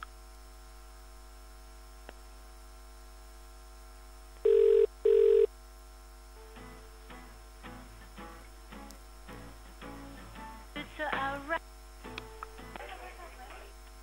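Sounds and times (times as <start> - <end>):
telephone ringing tone: 4.4 - 5.5
faint music: 6.3 - 14.0.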